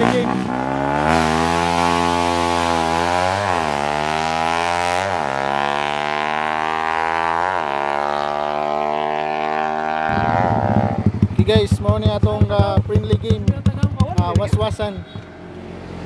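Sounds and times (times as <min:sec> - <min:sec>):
vehicle engine running: 0:06.6 - 0:16.0.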